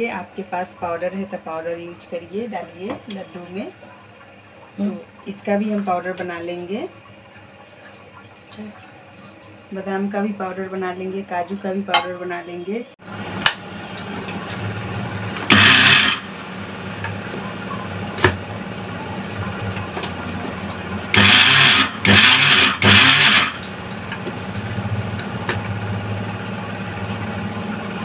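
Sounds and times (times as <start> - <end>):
mixer grinder motor hum: 13.1 - 17.2, 18.0 - 28.0
grinder whirring bursts: 15.5 - 16.3, 21.1 - 23.6.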